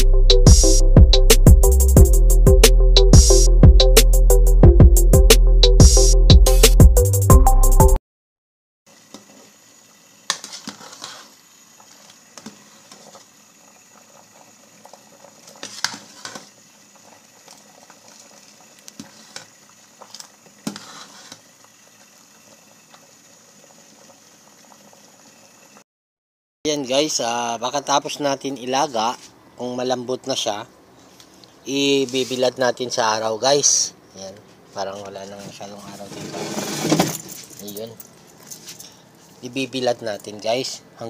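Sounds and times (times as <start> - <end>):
burst of music: 0.0 - 8.0
water boiling in a pot: 8.9 - 25.8, 31.6 - 41.0
metal spoon scraping a pot: 10.3 - 11.3.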